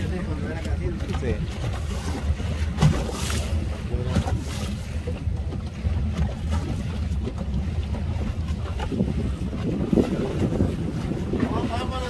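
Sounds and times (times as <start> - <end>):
water splashing against hull: 0.0 - 12.0
wind on microphone: 0.0 - 12.0.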